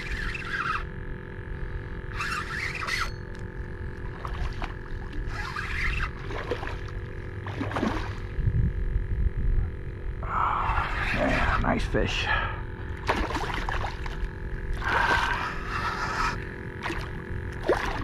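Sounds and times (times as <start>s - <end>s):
wind rumble on microphone: 4.4s - 11.8s
fish thrashing and splashing: 13.0s - 15.6s, 16.8s - 18.0s.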